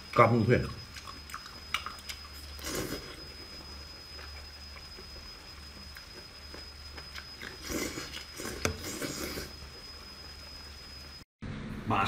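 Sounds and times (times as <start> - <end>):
wet chewing with clicks: 0.1 - 3.1
loud bite: 0.9 - 3.2.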